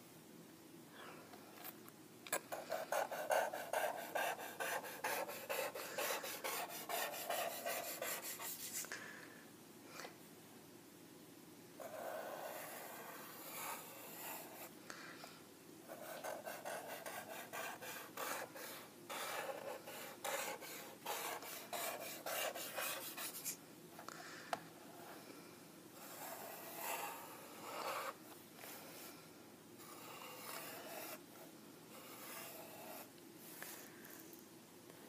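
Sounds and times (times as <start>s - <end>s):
marker rubbing across paper: 2.5s - 8.9s, 11.8s - 14.7s, 15.9s - 23.6s, 26.0s - 29.1s, 29.8s - 31.2s, 31.9s - 33.8s.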